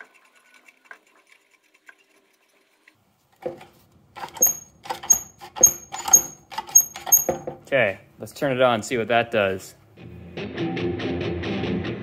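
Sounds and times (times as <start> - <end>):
metallic clicking and knocking: 3.4 - 7.7.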